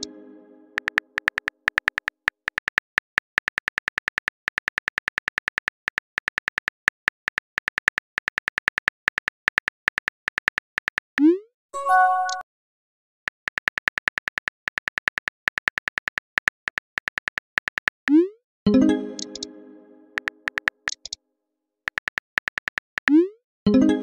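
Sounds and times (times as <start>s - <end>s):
phone keyboard clicks: 0.8s - 11.1s, 13.3s - 18.0s, 20.2s - 21.2s, 21.9s - 23.1s.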